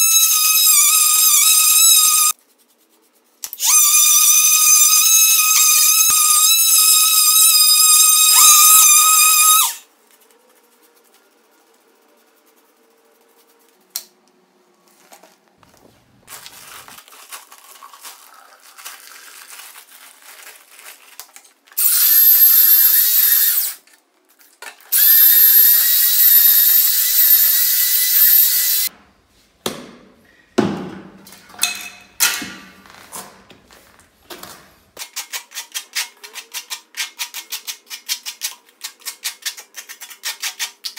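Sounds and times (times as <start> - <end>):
oscillating multi-tool whining: 0.0 - 2.4, 3.6 - 9.8, 21.8 - 23.8, 24.9 - 28.9.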